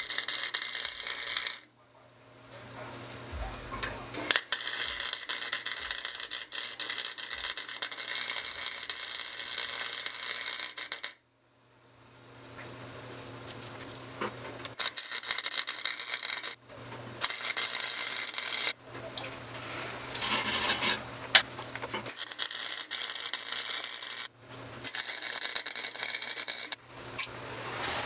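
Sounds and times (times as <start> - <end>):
arc welding crackling: 0.0 - 1.7, 4.2 - 11.2, 14.6 - 16.6, 17.2 - 18.8, 21.7 - 27.3.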